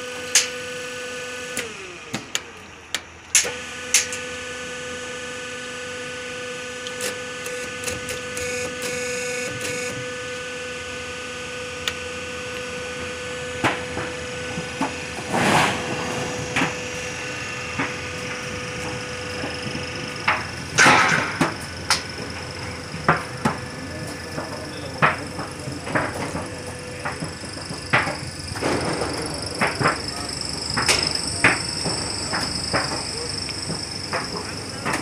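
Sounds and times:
machine motors humming: 0:00.0 - 0:35.0
short rushing noise: 0:15.2 - 0:16.8.

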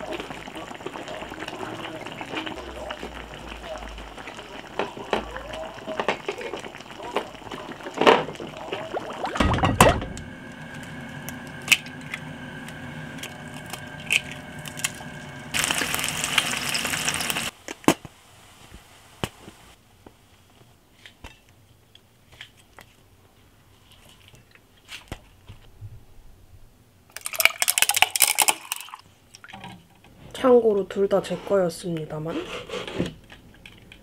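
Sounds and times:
steady hum: 0:08.6 - 0:17.5
sizzling in hot pan: 0:10.4 - 0:17.6
fizzy drink poured over ice: 0:27.2 - 0:29.0.

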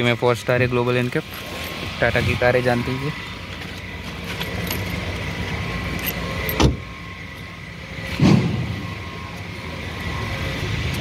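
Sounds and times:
car door thumping shut: 0:06.6 - 0:06.8.

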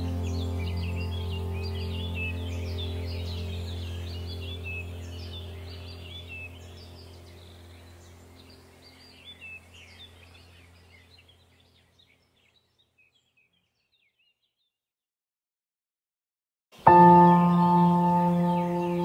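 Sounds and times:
low steady hum: 0:00.0 - 0:12.0
birds chirping: 0:00.0 - 0:14.8, 0:16.8 - 0:19.0.

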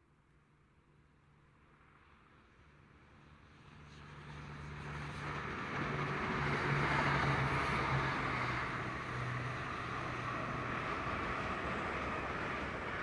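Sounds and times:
diesel train engine drone: 0:01.3 - 0:13.0
train wheels rushing on rails: 0:05.2 - 0:13.0.

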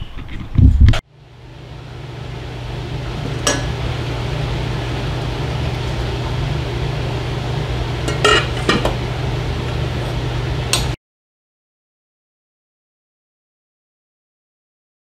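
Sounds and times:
low steady hum: 0:00.0 - 0:11.0
soup boiling in pot: 0:01.1 - 0:11.0
cookware clinking: 0:03.3 - 0:03.8, 0:08.0 - 0:09.0.

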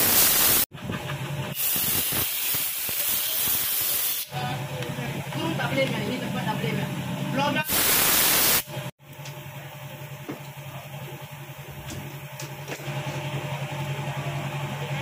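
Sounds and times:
burst of noise: 0:00.0 - 0:00.7, 0:07.7 - 0:08.7
low machine hum: 0:04.3 - 0:07.6, 0:08.7 - 0:15.0.

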